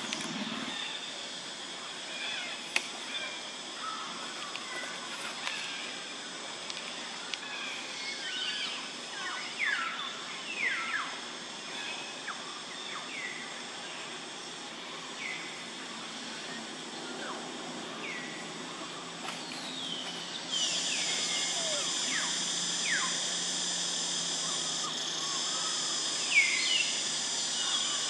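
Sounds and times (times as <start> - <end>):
steady high-pitched hiss: 0.0 - 28.0
birds whistling falling calls: 24.4 - 27.0.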